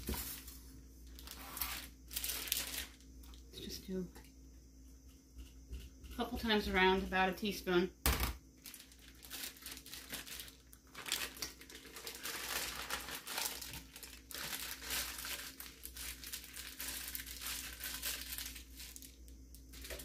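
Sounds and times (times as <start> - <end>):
plastic bag crinkling: 0.0 - 3.4, 8.6 - 20.0.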